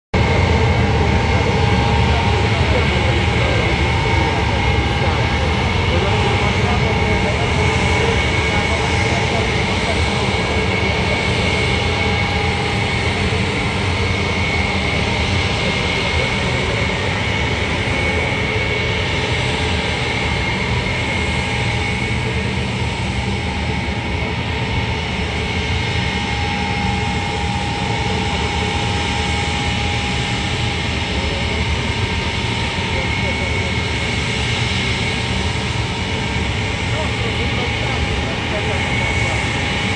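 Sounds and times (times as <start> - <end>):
jet engines rushing and whining: 0.2 - 39.9.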